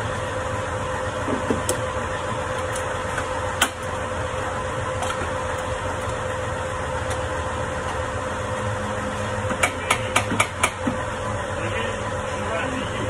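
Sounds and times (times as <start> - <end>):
workshop hum: 0.0 - 13.0
sharp knocks of tools: 9.5 - 11.0.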